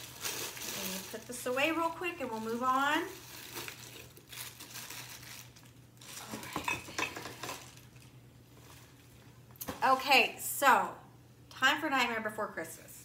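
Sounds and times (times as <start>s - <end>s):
plastic wrapping rustling: 0.0s - 9.8s.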